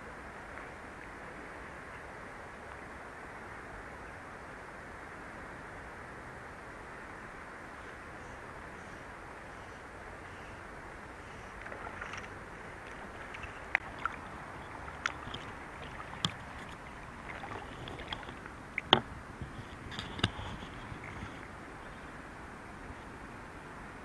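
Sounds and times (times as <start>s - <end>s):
river water rushing: 0.0s - 24.0s
knocks and splashes: 11.6s - 21.4s.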